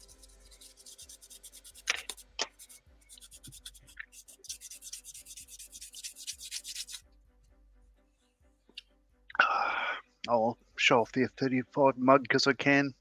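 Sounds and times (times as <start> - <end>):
sanding on plastic part: 0.0 - 7.0.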